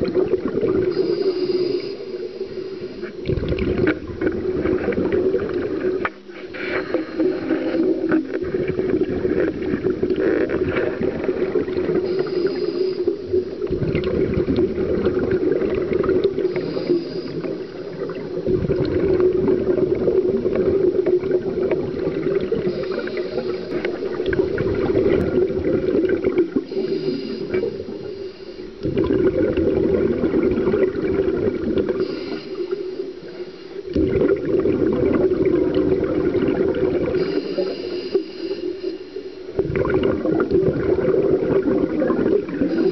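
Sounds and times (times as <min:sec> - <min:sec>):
bubbling gurgling exhale: 0:00.0 - 0:42.9
steady hum: 0:00.0 - 0:42.9
regulator hissing inhale: 0:00.8 - 0:03.2, 0:06.3 - 0:08.2, 0:11.8 - 0:13.7, 0:16.3 - 0:18.4, 0:22.4 - 0:24.3, 0:26.5 - 0:28.8, 0:31.9 - 0:33.9, 0:37.1 - 0:39.6, 0:42.6 - 0:42.9.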